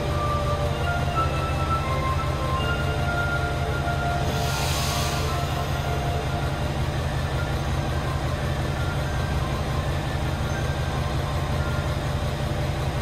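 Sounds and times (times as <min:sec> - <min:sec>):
diesel train engines idling: 0:00.0 - 0:13.0.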